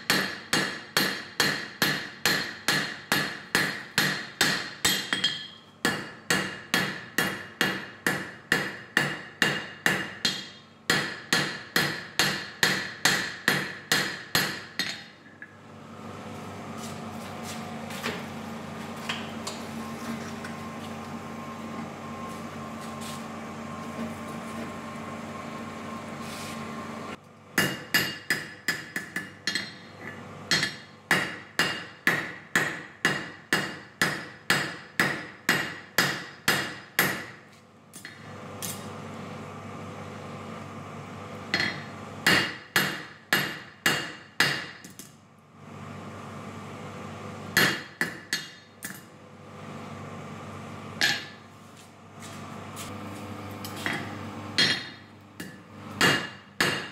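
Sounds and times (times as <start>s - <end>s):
hammer striking steel on anvil: 0.0s - 15.5s, 27.6s - 29.9s, 30.5s - 37.4s, 41.5s - 45.1s, 47.6s - 49.1s, 51.0s - 51.4s, 53.6s - 56.9s
forge air blower humming: 15.2s - 27.5s, 37.8s - 42.6s, 45.3s - 47.9s, 48.8s - 56.9s.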